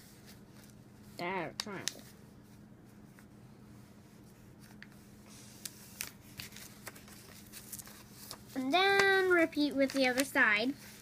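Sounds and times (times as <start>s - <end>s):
paper rustling and creasing: 4.3s - 11.0s.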